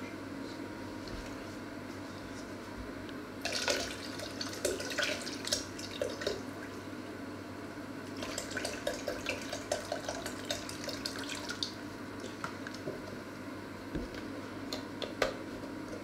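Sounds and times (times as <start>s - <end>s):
liquid pouring into plastic jug: 3.4s - 6.5s.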